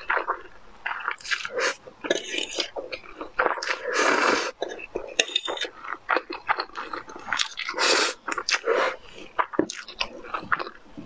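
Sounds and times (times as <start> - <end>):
chewing with wet mouth clicks: 0.0 - 10.8
noodle slurp: 0.9 - 5.8, 6.6 - 9.0.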